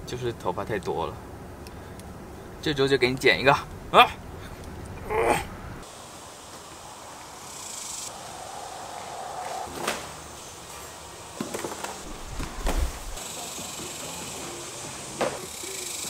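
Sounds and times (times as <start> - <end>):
faint high insect buzz: 5.8 - 16.0
cardboard box knocks and scrapes: 12.1 - 13.2.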